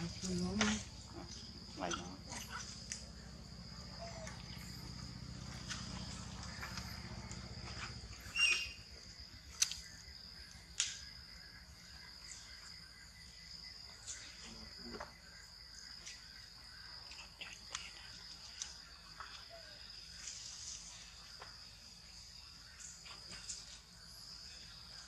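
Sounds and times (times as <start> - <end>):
insects droning: 0.0 - 25.0
short squeaky chirp: 8.3 - 8.8.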